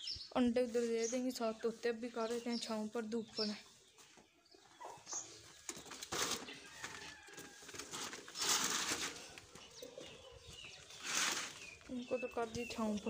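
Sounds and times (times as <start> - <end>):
bird chirps: 0.0 - 6.7, 9.5 - 13.0
cage scraping on concrete: 6.0 - 11.8.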